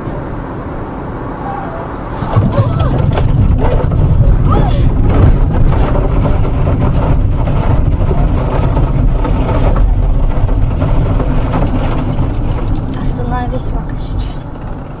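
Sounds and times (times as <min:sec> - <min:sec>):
tyres rumbling over rough ground: 0:00.0 - 0:15.0.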